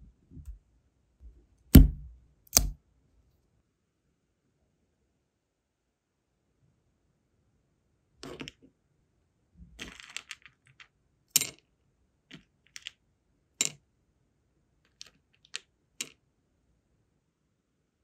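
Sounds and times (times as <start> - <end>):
rattle of beads: 9.8 - 11.6.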